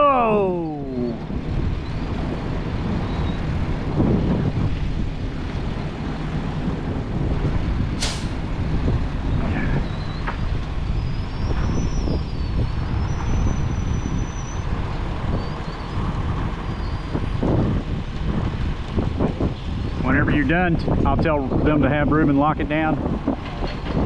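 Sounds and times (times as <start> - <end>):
air hissing: 8.0 - 8.4.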